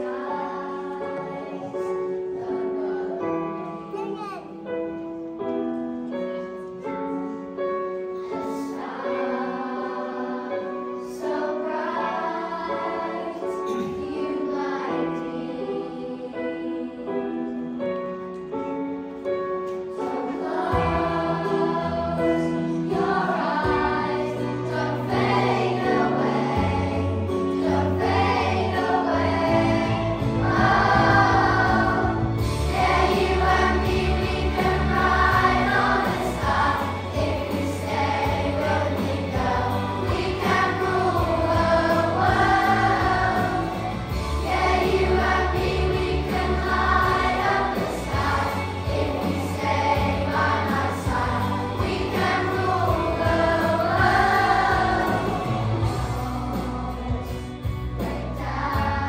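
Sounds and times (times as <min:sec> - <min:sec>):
children's choir singing: 0:00.0 - 0:04.0, 0:04.8 - 0:59.0
instrumental accompaniment: 0:00.2 - 0:59.0.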